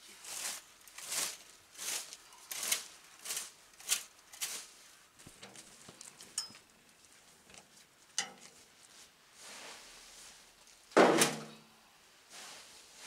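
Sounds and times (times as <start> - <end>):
rake scraping dry leaves: 0.0 - 5.9.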